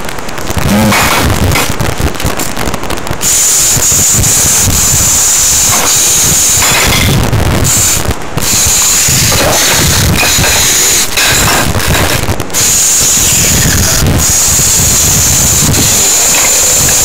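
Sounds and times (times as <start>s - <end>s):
harsh crackling noise: 0.0s - 17.0s.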